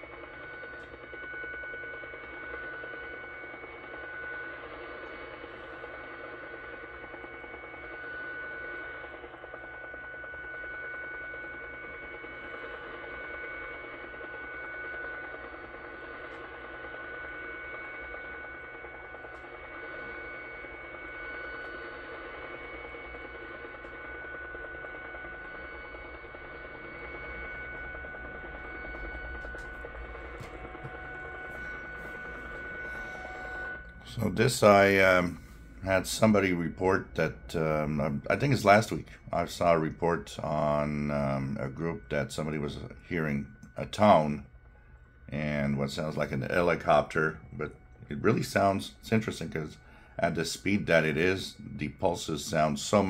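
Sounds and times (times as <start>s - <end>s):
radio band noise: 0.0s - 44.5s, 45.3s - 53.0s
rapid pulsing radio signal: 0.0s - 44.5s, 45.3s - 53.0s
steady radio tones: 0.0s - 53.0s.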